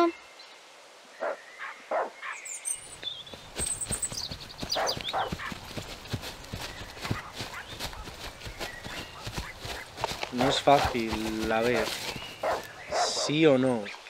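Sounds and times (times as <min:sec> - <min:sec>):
birds chirping: 0:00.0 - 0:14.0
dog barking: 0:01.2 - 0:02.4, 0:04.7 - 0:05.5, 0:12.4 - 0:13.3
children running through grass: 0:03.0 - 0:13.2.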